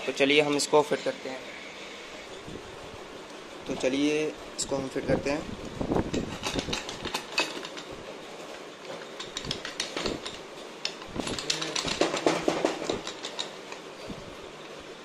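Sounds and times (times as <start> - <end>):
metal clutch parts clinking: 6.1 - 7.9, 9.1 - 13.9.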